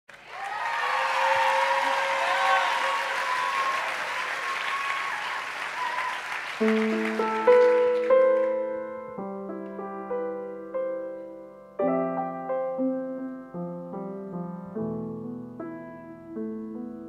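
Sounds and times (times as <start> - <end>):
audience applause: 0.1 - 8.8
slow piano chords: 6.6 - 17.0.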